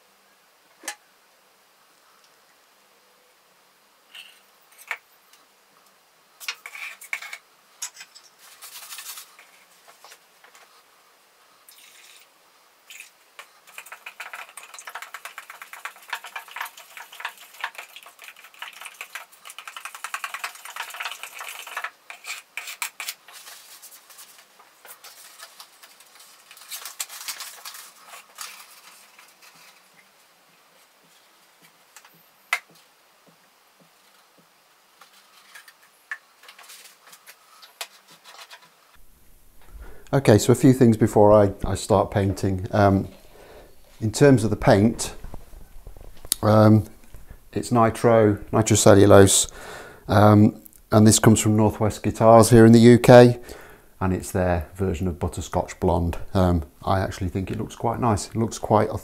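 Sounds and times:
stick scraping and tapping cup: 13.4 - 23.6.

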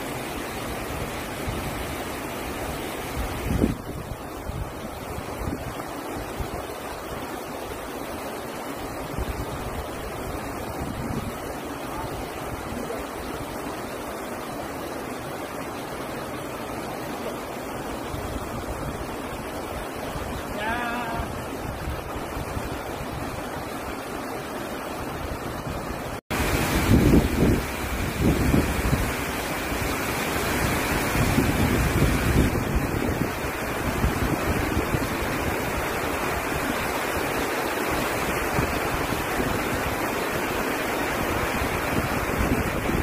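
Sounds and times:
sea surf washing over rocks: 0.0 - 43.0
wind buffeting microphone: 3.1 - 5.8, 18.1 - 23.8, 25.0 - 43.0.

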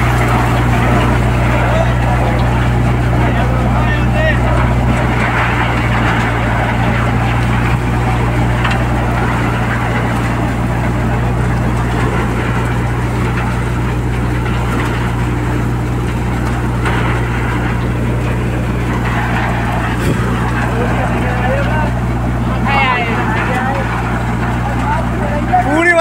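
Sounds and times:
stripping machine running: 0.0 - 26.0.

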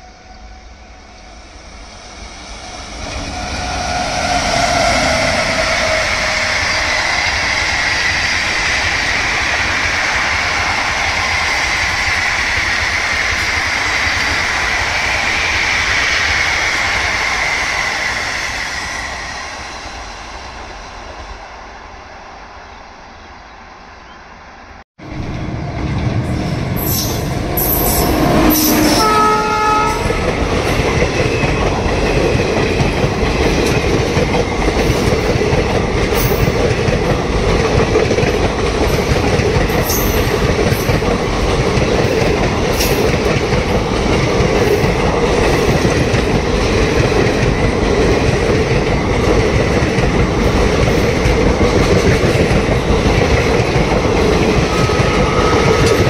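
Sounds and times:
train coaches clickety-clack: 1.9 - 21.2, 25.8 - 56.0
train horn blast: 26.8 - 30.3, 54.7 - 56.0.

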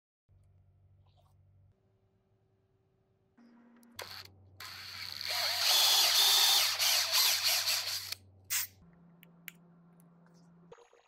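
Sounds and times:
power drill cutting into wood: 4.0 - 8.2.

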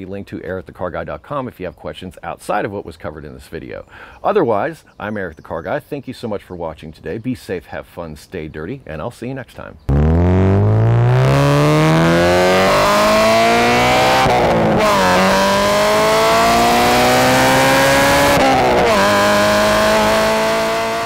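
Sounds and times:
car engine accelerating: 9.9 - 21.0.

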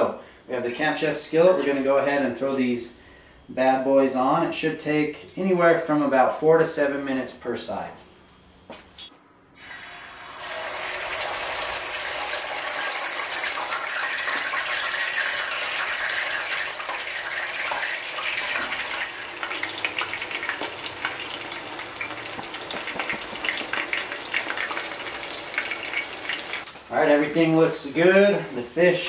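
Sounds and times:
fish sizzling in hot oil: 9.6 - 26.7
oil crackling and popping: 9.6 - 26.8.

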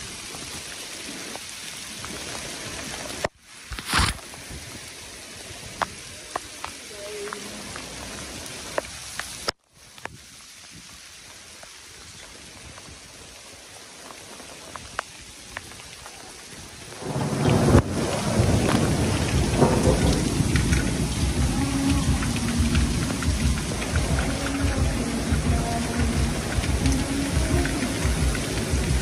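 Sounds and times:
hail pelting on paving: 0.0 - 29.0
light rain drops ticking: 0.0 - 29.0
deep rumble: 17.4 - 29.0.

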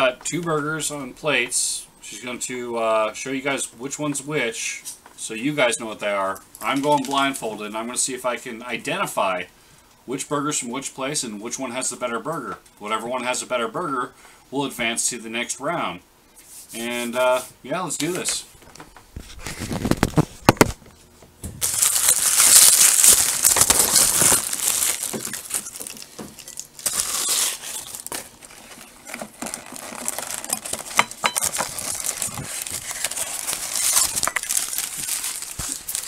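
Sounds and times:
paper wrappers crinkling: 19.2 - 20.8, 21.6 - 36.0.

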